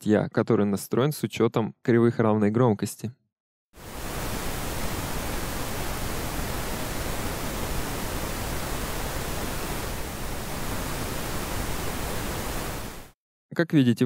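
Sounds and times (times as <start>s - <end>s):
filtered pink noise hiss: 3.8s - 13.2s.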